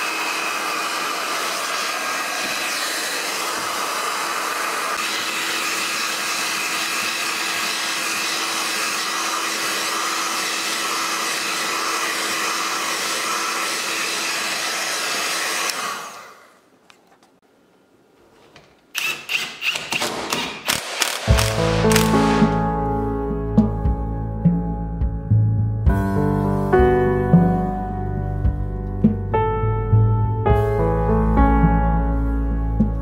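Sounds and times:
heat gun blowing air: 0.0s - 16.4s, 19.0s - 22.6s.

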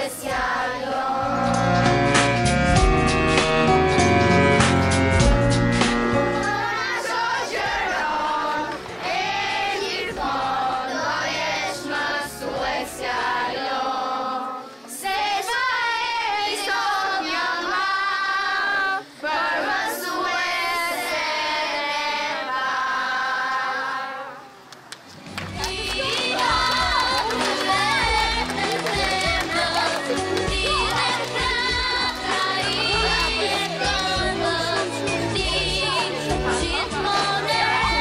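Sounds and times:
children singing: 0.0s - 5.4s, 6.0s - 24.6s, 25.6s - 38.0s
instrumental music: 0.6s - 13.7s, 25.2s - 38.0s.

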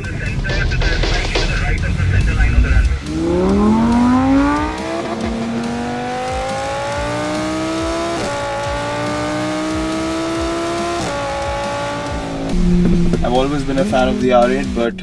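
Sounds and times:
car engine accelerating hard: 0.0s - 15.0s.

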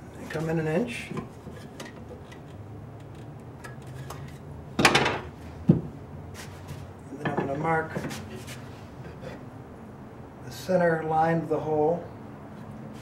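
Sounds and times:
wooden piece knocking down: 4.8s - 5.8s.

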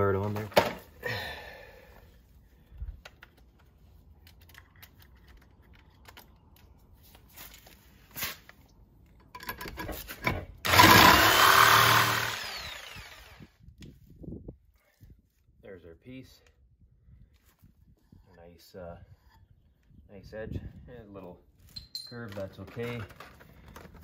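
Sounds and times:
jigsaw cutting metal: 10.6s - 13.5s.

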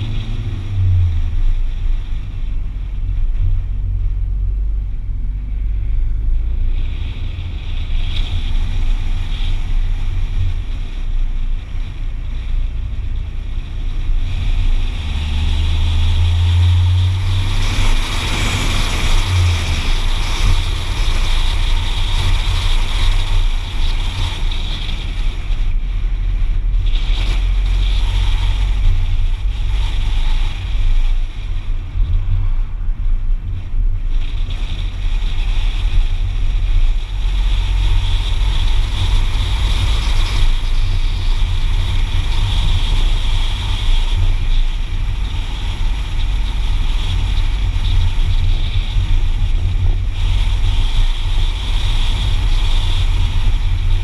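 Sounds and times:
engine and tyre rumble: 0.0s - 54.0s.

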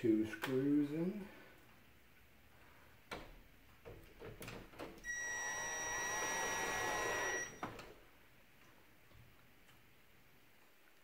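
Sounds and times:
drill motor whine: 5.1s - 7.7s.

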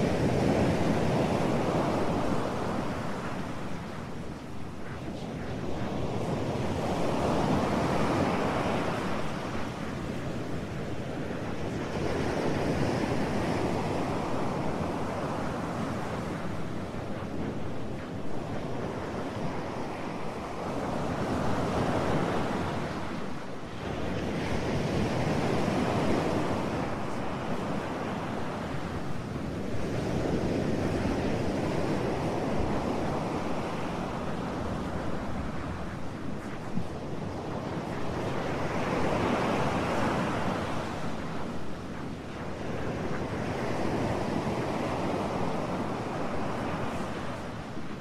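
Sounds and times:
ocean waves washing in: 0.0s - 48.0s.

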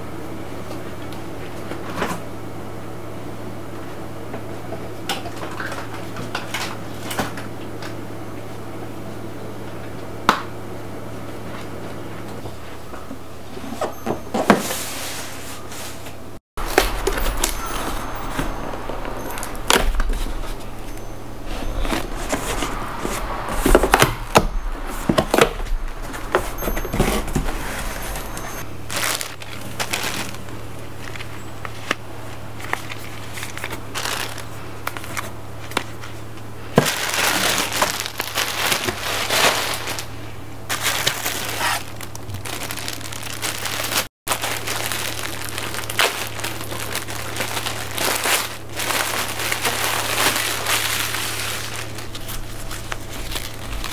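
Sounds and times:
plastic bags rustling and crinkling: 13.5s - 53.9s.

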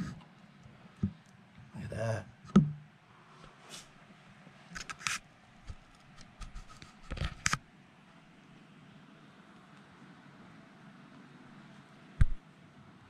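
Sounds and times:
camera knocking on glass: 2.5s - 2.8s.

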